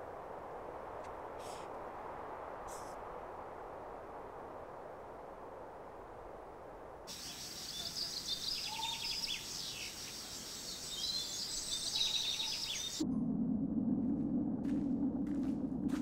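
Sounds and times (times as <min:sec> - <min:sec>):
birds chirping: 0:07.1 - 0:13.0
insects trilling: 0:07.1 - 0:13.0
steady low rumble: 0:12.8 - 0:16.0.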